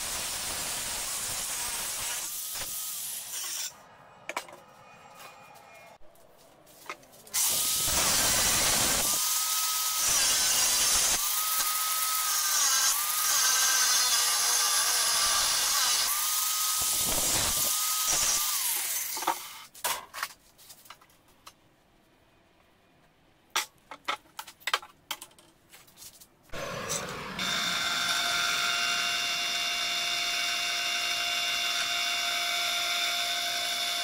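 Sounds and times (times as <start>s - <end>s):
angle grinder cutting metal: 0.0s - 3.8s, 7.4s - 19.5s, 26.6s - 34.0s.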